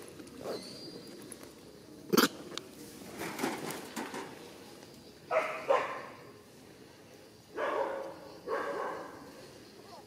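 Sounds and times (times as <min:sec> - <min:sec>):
animal barking: 0:05.3 - 0:06.1, 0:07.6 - 0:09.2.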